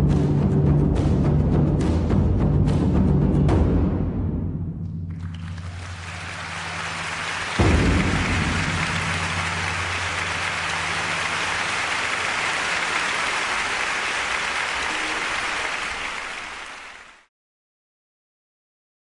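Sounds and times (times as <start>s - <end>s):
audience applauding: 5.1s - 17.3s.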